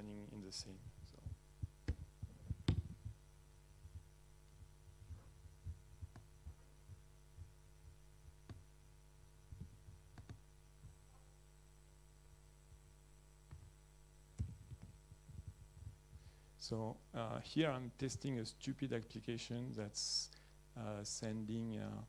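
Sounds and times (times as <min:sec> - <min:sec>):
low electrical hum: 0:00.0 - 0:22.0
typing on laptop keyboard: 0:10.1 - 0:10.4.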